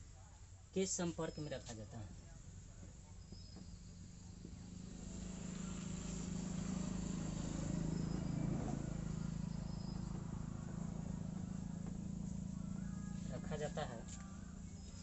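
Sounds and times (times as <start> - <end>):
faint hiss: 4.6 - 9.4.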